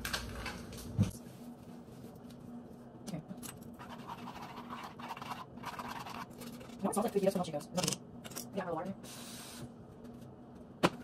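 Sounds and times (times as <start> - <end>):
utensil scraping saucepan: 3.8 - 7.3.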